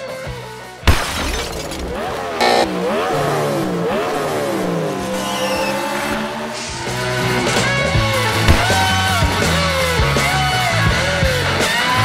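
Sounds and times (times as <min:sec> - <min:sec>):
car engine revving: 0:01.6 - 0:09.8.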